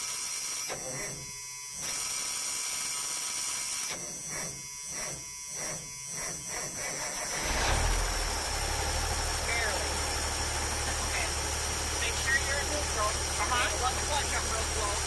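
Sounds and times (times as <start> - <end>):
starter motor cranking: 4.0 - 15.0
truck engine rumbling: 7.1 - 15.0.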